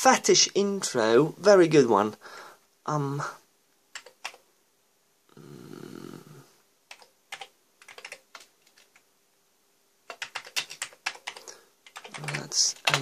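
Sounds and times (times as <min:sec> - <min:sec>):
computer keyboard typing: 0:03.9 - 0:04.4, 0:06.9 - 0:09.0, 0:10.1 - 0:13.0.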